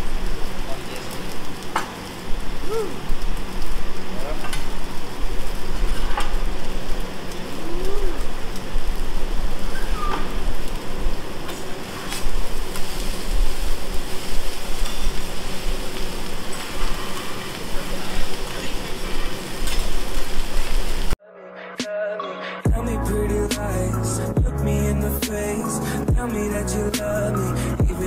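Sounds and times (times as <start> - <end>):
food sizzling on griddle: 0.0 - 21.2, 22.7 - 28.0.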